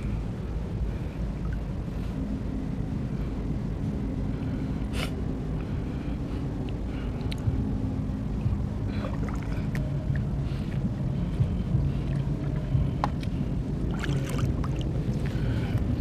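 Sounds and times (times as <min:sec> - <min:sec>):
steady low drone: 0:00.0 - 0:16.0
seawater sloshing: 0:08.8 - 0:16.0
small water splashes: 0:13.9 - 0:15.4.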